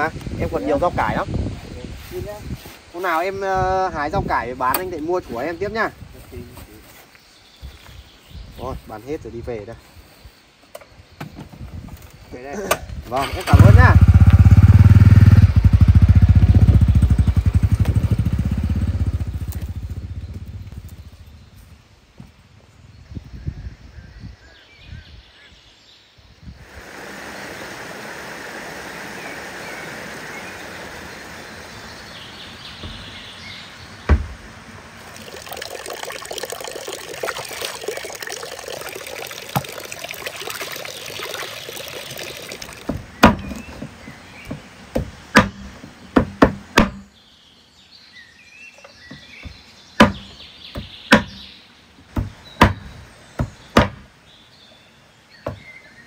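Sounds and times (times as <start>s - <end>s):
water running and splashing: 34.8s - 44.6s.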